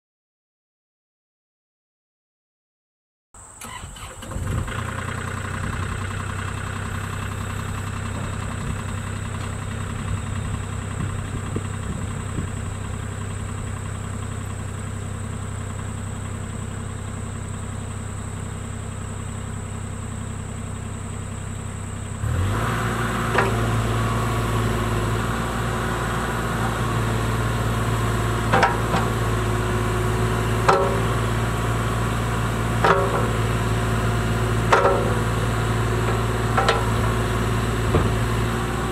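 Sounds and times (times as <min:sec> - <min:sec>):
diesel excavator engine: 0:03.4 - 0:38.9
excavator arm knocks: 0:28.5 - 0:29.2, 0:30.7 - 0:31.2, 0:32.8 - 0:33.5, 0:34.7 - 0:38.3.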